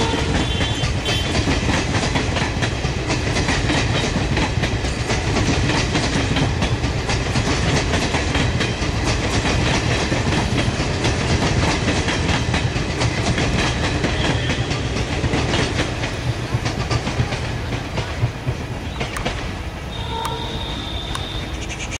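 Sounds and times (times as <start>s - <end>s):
train wheels clicking over rail joints: 0.0s - 21.9s
high-pitched call: 19.9s - 21.9s.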